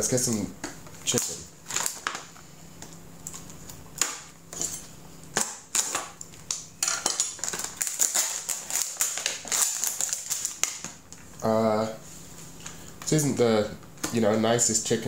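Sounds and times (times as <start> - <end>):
plastic packaging crinkling: 1.0 - 2.4, 5.5 - 11.0.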